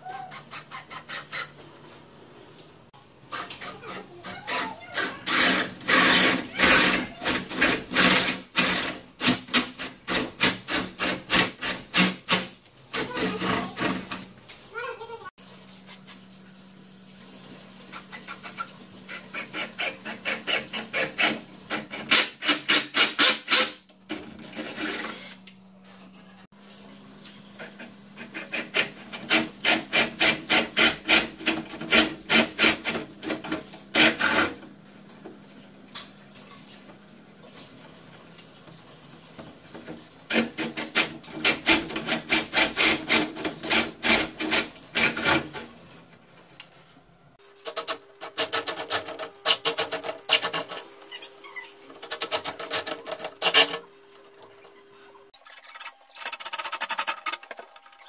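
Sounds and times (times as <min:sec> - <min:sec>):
drill boring into wood: 0:04.5 - 0:12.2, 0:20.2 - 0:25.4.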